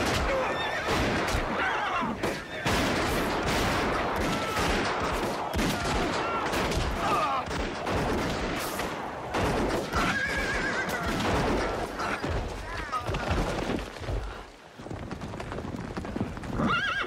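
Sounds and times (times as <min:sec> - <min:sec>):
horses whinnying: 0:00.0 - 0:02.6, 0:09.8 - 0:13.4, 0:16.5 - 0:17.0
gunshots: 0:00.0 - 0:13.6
galloping hooves: 0:08.8 - 0:17.0.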